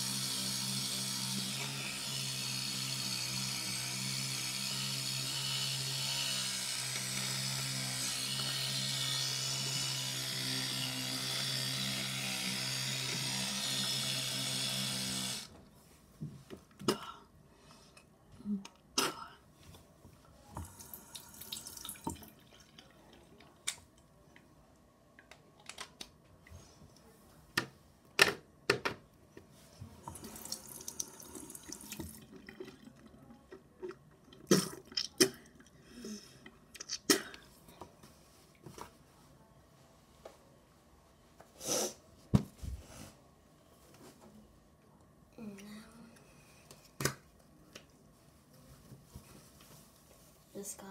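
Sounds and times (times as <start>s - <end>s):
electric toothbrush buzzing: 0.0s - 15.5s, 30.1s - 32.2s.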